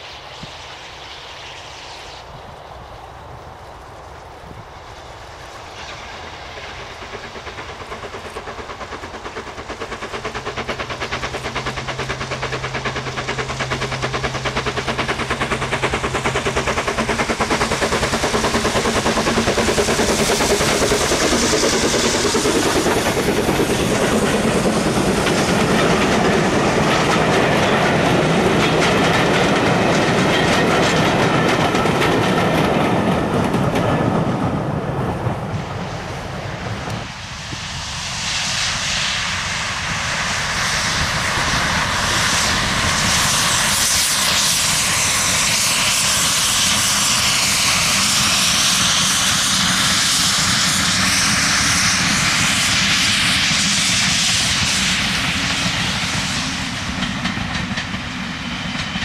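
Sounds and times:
steam train running past: 0:00.0 - 0:59.0
wheels clacking over rail joints: 0:05.8 - 0:34.7, 0:55.2 - 0:59.0.

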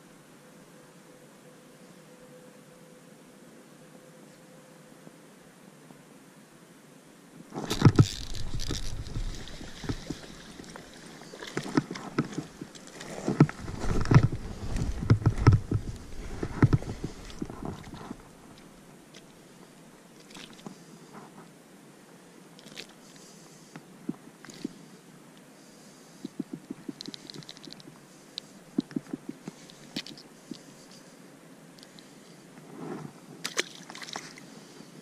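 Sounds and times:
water splashing: 0:07.6 - 0:18.7, 0:33.4 - 0:34.4
knocks and thumps: 0:13.3 - 0:18.1.

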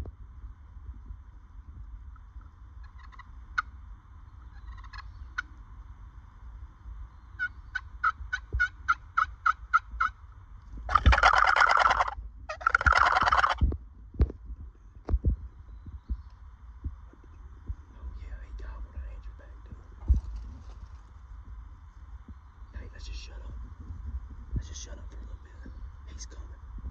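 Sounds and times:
turkey gobbling: 0:02.1 - 0:03.7, 0:04.4 - 0:05.5, 0:07.4 - 0:10.2, 0:10.9 - 0:13.6
turkey yelps: 0:02.8 - 0:03.7, 0:04.4 - 0:05.1, 0:07.4 - 0:10.2, 0:10.9 - 0:13.6.

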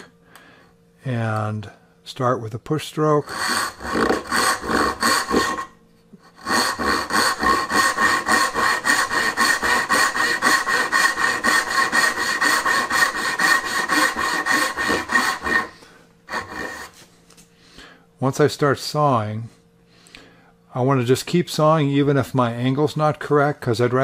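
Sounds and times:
hand saw cutting wood: 0:03.0 - 0:17.1.

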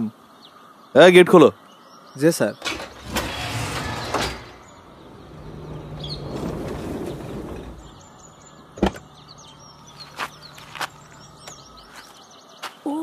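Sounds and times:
birds chirping: 0:00.0 - 0:13.0
gate clank: 0:02.6 - 0:07.9
iron gate scraping open: 0:02.6 - 0:08.2
vehicle engine running low: 0:04.4 - 0:12.0.

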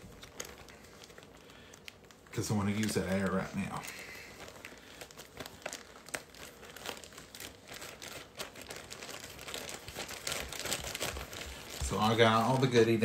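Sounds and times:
plastic bag crinkling: 0:00.0 - 0:13.0.

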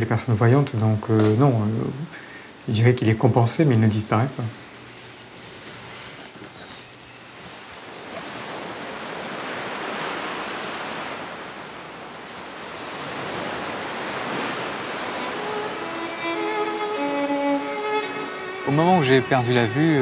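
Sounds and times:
waves breaking on a beach: 0:04.2 - 0:20.0.

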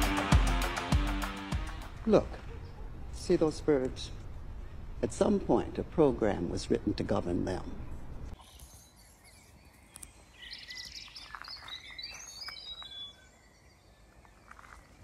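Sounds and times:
small birds chirping: 0:07.8 - 0:15.0.

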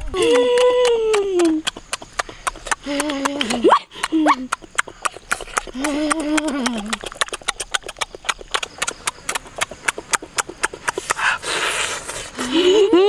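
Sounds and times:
person humming mmm: 0:00.0 - 0:08.4
noisy chewing and lip-smacking: 0:00.0 - 0:12.8.

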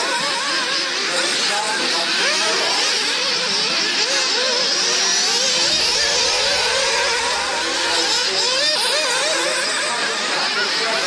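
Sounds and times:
rc buggy engines buzzing: 0:05.2 - 0:09.7.

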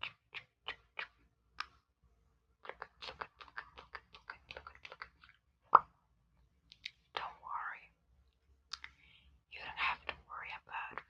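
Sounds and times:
wet mouth clicks and smacks: 0:00.0 - 0:01.8, 0:02.6 - 0:05.9, 0:06.7 - 0:07.3, 0:08.7 - 0:09.0.

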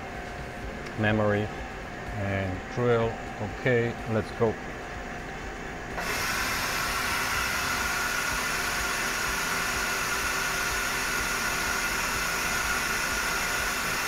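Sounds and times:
lathe high whine: 0:00.0 - 0:14.0
coolant hiss: 0:06.0 - 0:14.0.

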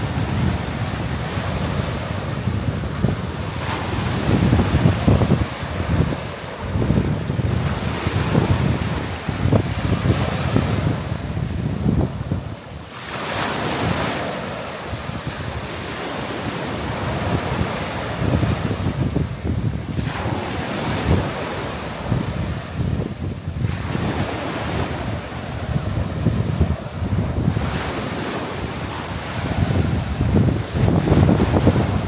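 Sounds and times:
small waves washing up beach: 0:00.0 - 0:32.0
wind buffeting microphone: 0:00.0 - 0:32.0.

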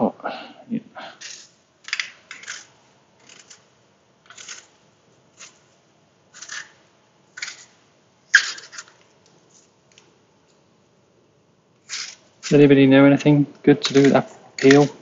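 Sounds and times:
peeler scraping apple skin: 0:01.2 - 0:03.7, 0:04.3 - 0:05.6, 0:06.3 - 0:06.8, 0:07.4 - 0:07.8, 0:11.8 - 0:12.6, 0:13.8 - 0:15.0.

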